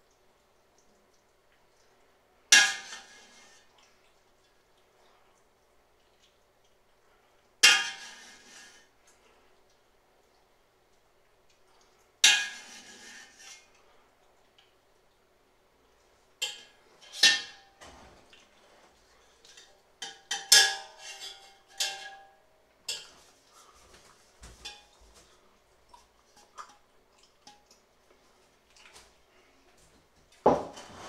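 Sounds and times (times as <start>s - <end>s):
metal spoon scraping stockpot: 7.7s - 8.9s, 12.3s - 13.7s, 19.5s - 22.2s.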